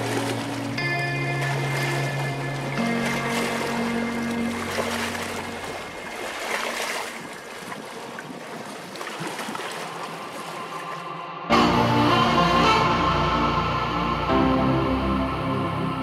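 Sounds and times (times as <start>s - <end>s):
background music: 0.0s - 6.1s, 10.9s - 16.0s
lake water splashing: 0.0s - 11.2s.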